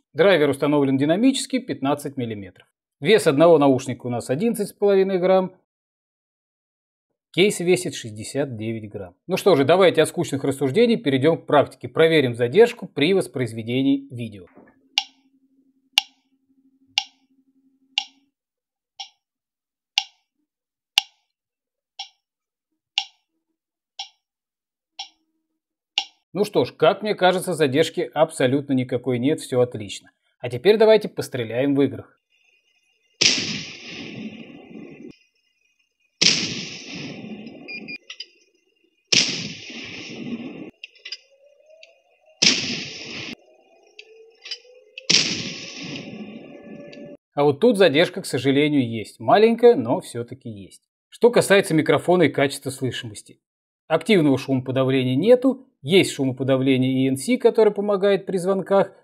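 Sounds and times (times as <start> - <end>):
sharp click-beeps: 15.0 - 15.2, 16.0 - 16.2, 17.0 - 17.2, 18.0 - 18.2, 26.0 - 26.2, 37.7 - 38.4
tank cannon blasts: 33.2 - 34.8, 36.2 - 37.6, 39.1 - 40.7.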